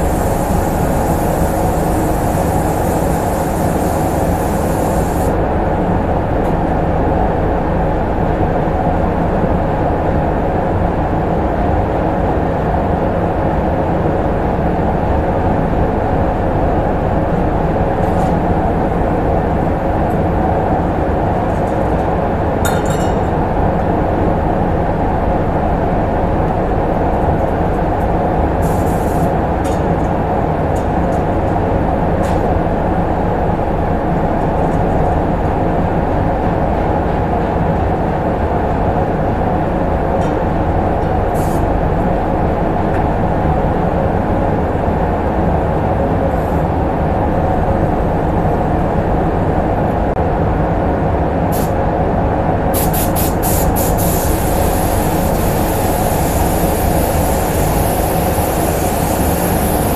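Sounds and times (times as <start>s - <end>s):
spray gun air bursts: 0.0s - 5.4s, 28.6s - 29.3s, 41.4s - 41.6s, 51.5s - 51.8s, 52.7s - 59.9s
spray gun hissing: 0.0s - 5.4s, 28.6s - 29.3s, 52.8s - 59.9s
spray booth air handling rumble: 0.0s - 5.9s, 17.6s - 48.9s, 51.4s - 51.8s, 52.7s - 59.9s.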